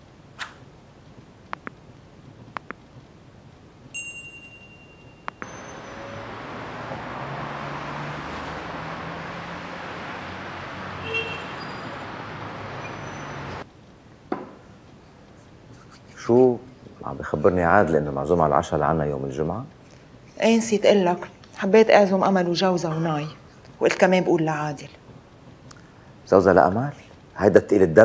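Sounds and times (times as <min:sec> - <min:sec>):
night street ambience: 0:00.0 - 0:28.0
soft clicks: 0:02.5 - 0:02.8
bell-like ding: 0:04.0 - 0:06.0
brief chime: 0:04.0 - 0:06.2.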